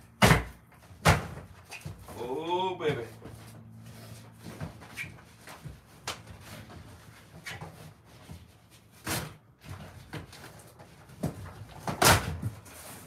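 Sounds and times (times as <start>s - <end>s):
cardboard box scraping and rustling: 3.0s - 13.0s.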